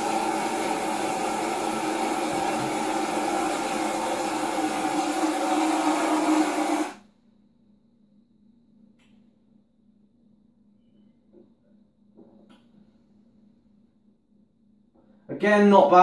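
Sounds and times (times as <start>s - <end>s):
electric mixer motor running: 0.0s - 7.0s.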